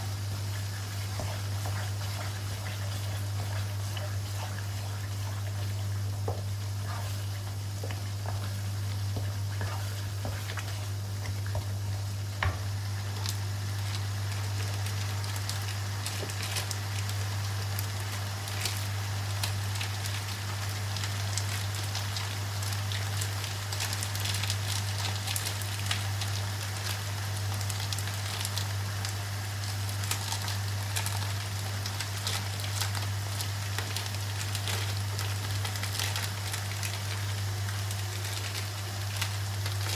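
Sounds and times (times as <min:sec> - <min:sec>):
chili paste sizzling in a wok: 0:00.0 - 0:39.9
steady low hum: 0:00.0 - 0:39.9
wooden spatula scraping wok: 0:00.4 - 0:11.8.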